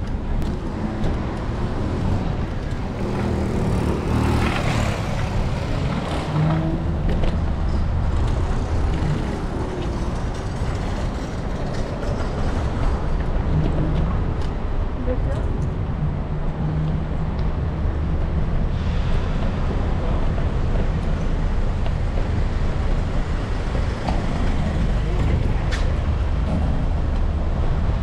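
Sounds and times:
traffic rumble: 0:00.0 - 0:28.0
vehicle passing close: 0:00.7 - 0:07.5.

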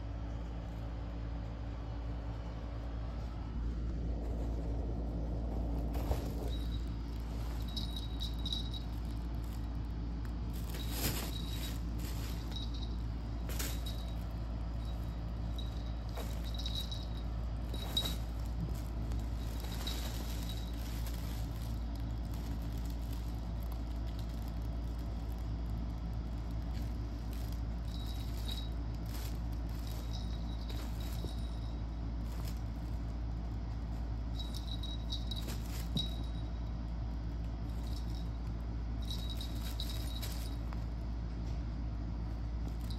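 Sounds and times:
steady low hum: 0:00.0 - 0:42.9
fabric tunnel rustling: 0:02.5 - 0:36.4, 0:37.6 - 0:41.0
faint light jingling: 0:05.6 - 0:25.3, 0:26.5 - 0:33.4, 0:34.0 - 0:41.2.

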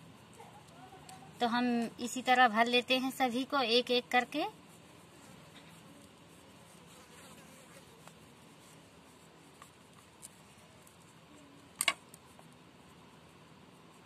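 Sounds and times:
faint steady buzz: 0:00.0 - 0:14.0
hands shaping dough on wooden board: 0:00.0 - 0:14.0
sharp clicks: 0:11.7 - 0:12.2.

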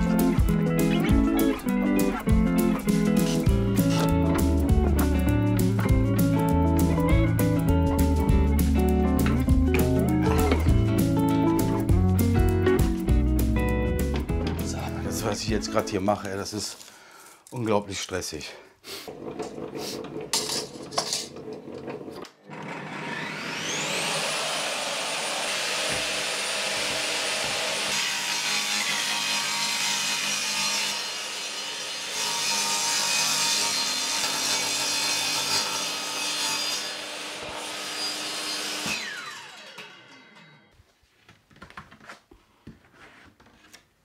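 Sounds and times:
saw ripping through board: 0:22.4 - 0:40.5
table saw motor whine: 0:22.4 - 0:40.7.

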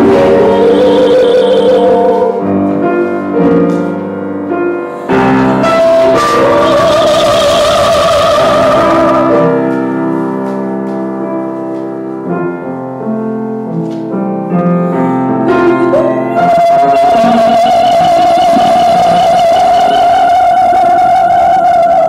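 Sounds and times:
woman singing classical with vibrato: 0:00.0 - 0:03.1, 0:05.1 - 0:09.8, 0:15.3 - 0:22.0
piano: 0:00.0 - 0:22.0.

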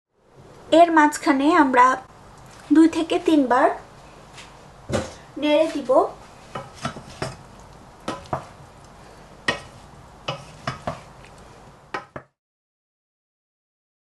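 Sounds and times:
wooden spatula knocking on pot: 0:08.0 - 0:08.5, 0:09.4 - 0:11.1, 0:11.9 - 0:12.4.

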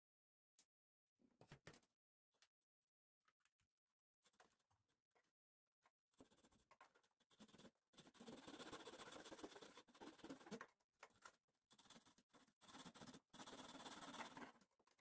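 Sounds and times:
hand file rasping on wood: 0:07.3 - 0:10.6, 0:11.7 - 0:14.6.

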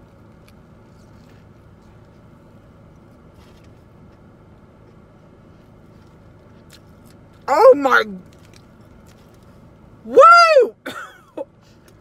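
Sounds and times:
crunchy chewing: 0:00.0 - 0:07.4, 0:08.2 - 0:09.8
low background hum: 0:00.0 - 0:12.0.

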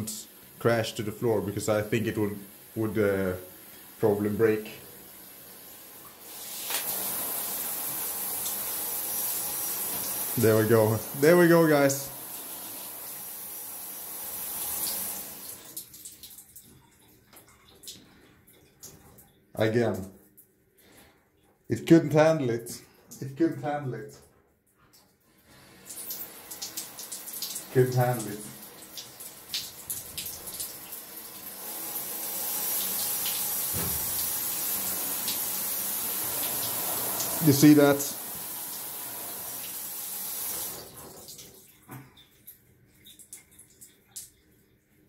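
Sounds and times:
showerhead water spraying: 0:06.2 - 0:15.7, 0:25.6 - 0:41.2.

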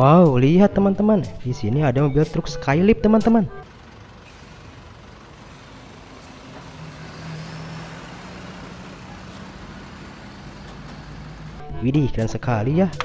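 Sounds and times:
engine and hydraulics humming: 0:03.5 - 0:11.7.

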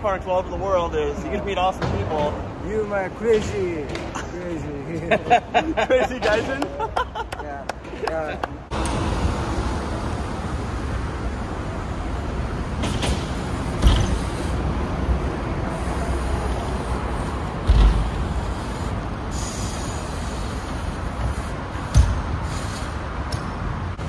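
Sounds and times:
low rumble of traffic: 0:00.0 - 0:24.0
bike tyres rolling on concrete: 0:10.0 - 0:24.0.

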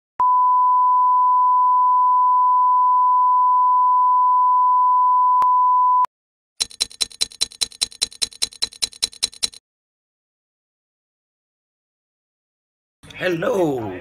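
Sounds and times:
fast ticking: 0:06.6 - 0:09.6.

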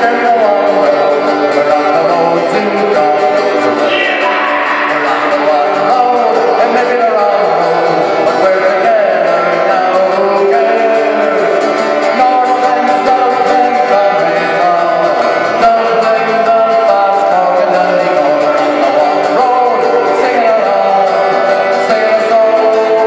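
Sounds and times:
acoustic guitar strumming: 0:00.0 - 0:23.0
man singing: 0:00.0 - 0:23.0.

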